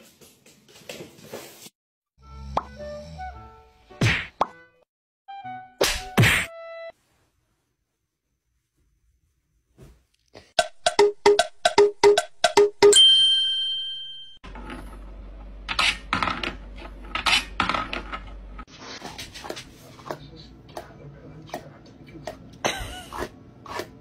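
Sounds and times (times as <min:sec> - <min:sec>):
bright metallic ding: 0:12.9 - 0:14.4.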